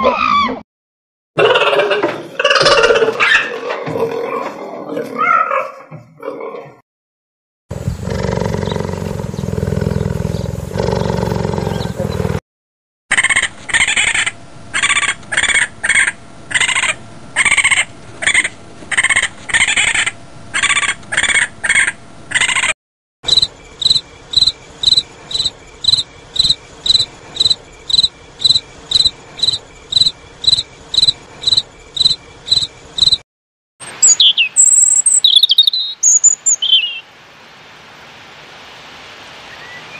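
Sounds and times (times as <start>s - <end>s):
cheetah low rumbling: 7.7s - 12.4s
raccoon calls: 7.8s - 12.4s, 13.1s - 22.7s, 23.3s - 33.2s, 34.0s - 37.0s
cricket chirping: 23.2s - 33.2s.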